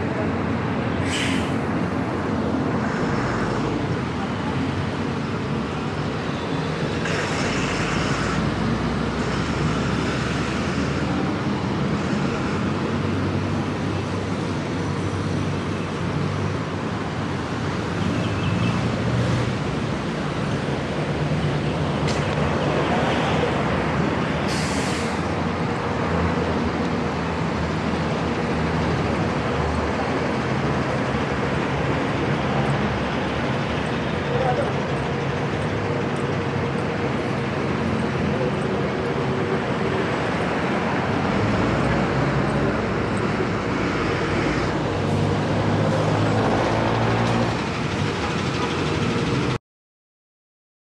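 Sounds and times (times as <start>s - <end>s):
bus passing close: 0.0s - 49.6s
road traffic passing: 0.0s - 49.6s
short hisses: 1.0s - 1.6s, 24.5s - 25.3s.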